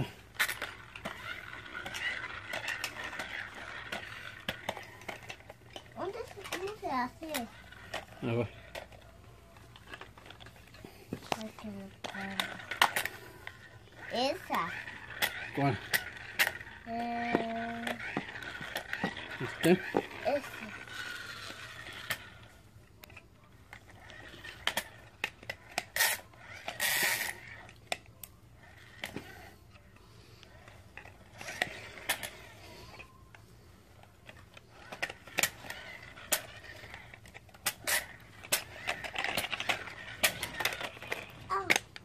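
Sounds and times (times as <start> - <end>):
plastic toy trucks clicking: 0.0 - 29.5, 30.4 - 33.1, 34.0 - 42.0.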